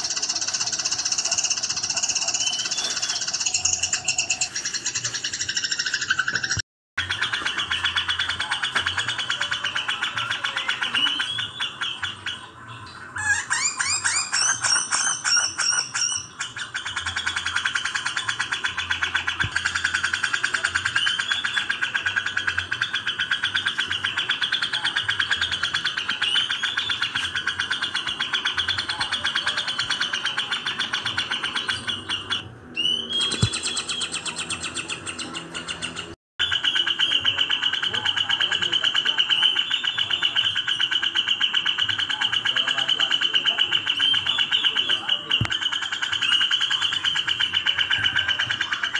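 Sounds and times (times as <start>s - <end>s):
birds scolding chatter: 0.0s - 48.9s.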